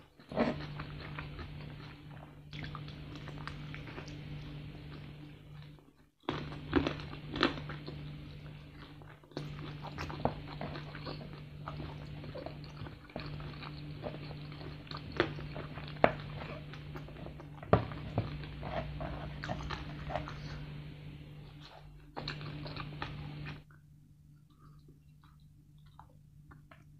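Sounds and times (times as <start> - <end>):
chewing crispy chicken: 0.0 - 26.9.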